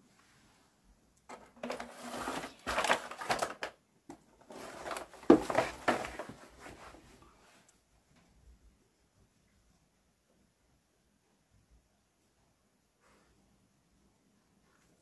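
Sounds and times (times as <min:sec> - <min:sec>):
things rustling and clattering: 0:01.3 - 0:07.2.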